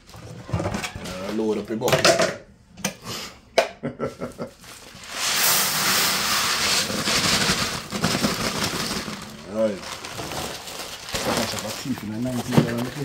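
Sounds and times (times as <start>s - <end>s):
rice grains pouring into bucket: 4.9s - 10.2s.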